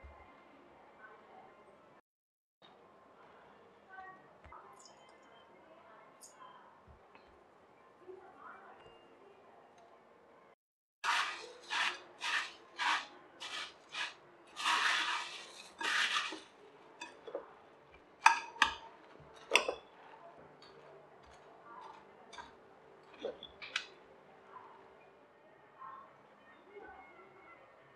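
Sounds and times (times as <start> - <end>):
spoon stirring puffed rice: 11.0 - 17.5.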